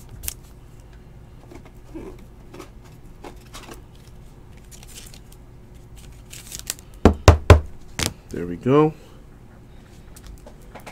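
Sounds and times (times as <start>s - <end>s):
plastic sleeve rustling: 3.2s - 7.0s, 7.9s - 8.2s.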